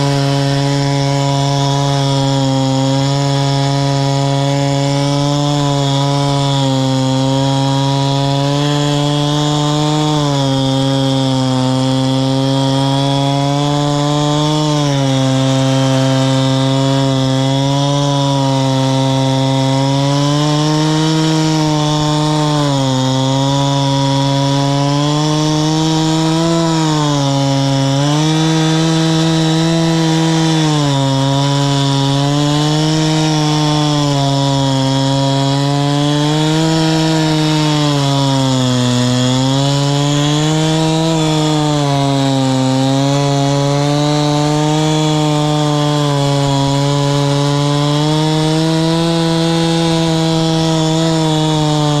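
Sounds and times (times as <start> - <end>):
chainsaw cutting log at full throttle: 0.0 - 52.0.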